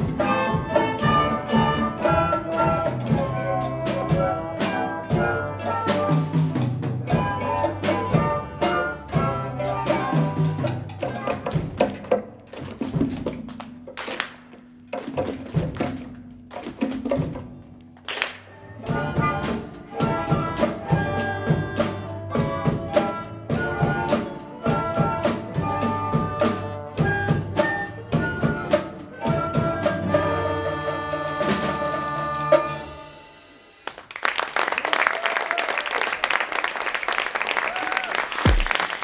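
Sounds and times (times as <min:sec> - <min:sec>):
children's orchestra playing: 0:00.0 - 0:14.1, 0:18.1 - 0:33.8
drum kit beat: 0:00.0 - 0:17.7, 0:18.7 - 0:33.6, 0:38.3 - 0:39.0
audience applause: 0:33.8 - 0:39.0.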